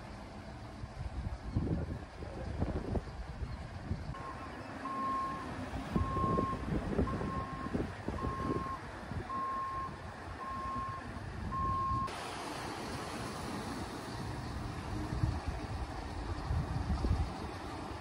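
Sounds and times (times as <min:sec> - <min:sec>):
reversing alarm beeping: 0:04.2 - 0:12.1.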